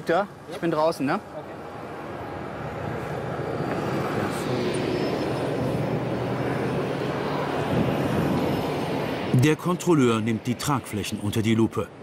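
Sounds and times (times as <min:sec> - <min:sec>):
jet aircraft rushing drone: 0:01.6 - 0:11.4.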